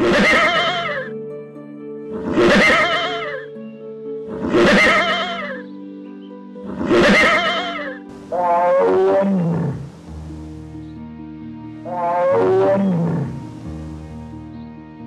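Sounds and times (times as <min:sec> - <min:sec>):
horse whinnying: 0:00.0 - 0:01.1, 0:02.2 - 0:03.5, 0:04.3 - 0:05.6, 0:06.7 - 0:10.1, 0:11.9 - 0:13.5
soft piano music: 0:00.0 - 0:15.0.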